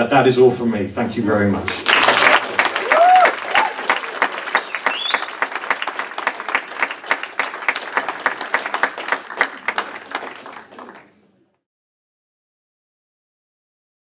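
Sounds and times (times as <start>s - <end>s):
audience applauding: 1.7s - 11.2s.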